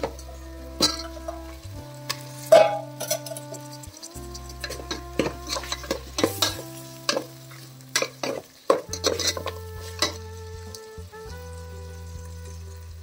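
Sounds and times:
chicken stirred in wet sauce: 4.2s - 10.3s
spoon scraping a metal pot: 4.3s - 10.2s.

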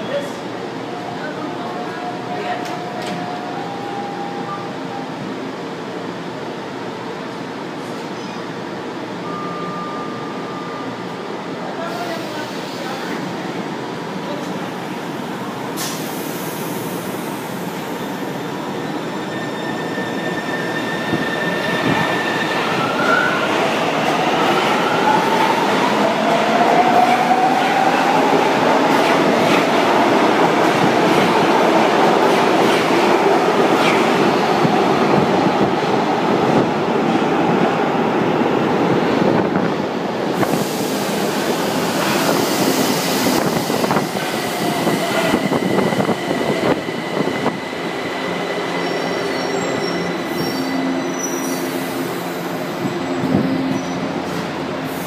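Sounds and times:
train rail noise: 0.0s - 55.0s.

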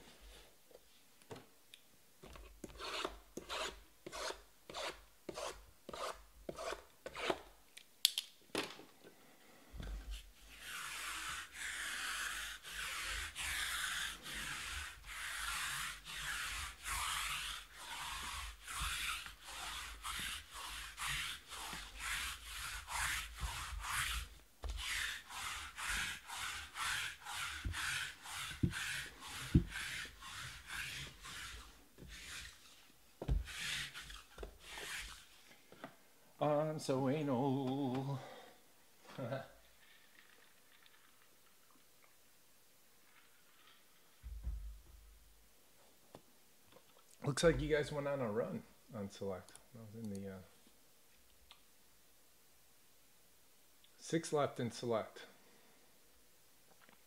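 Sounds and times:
hand rubbing strokes: 10.0s - 35.6s.

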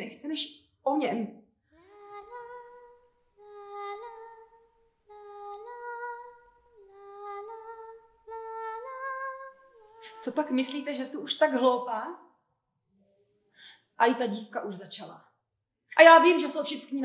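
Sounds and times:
woman singing slow melody: 1.8s - 10.9s.

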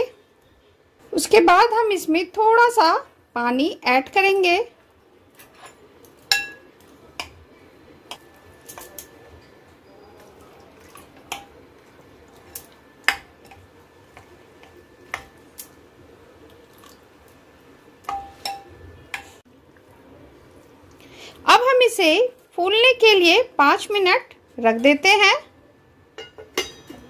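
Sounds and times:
spoon stirring semolina: 8.0s - 21.0s.

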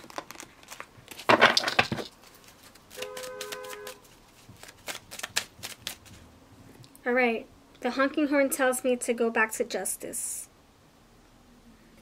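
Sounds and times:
car horn honking: 3.0s - 4.0s.

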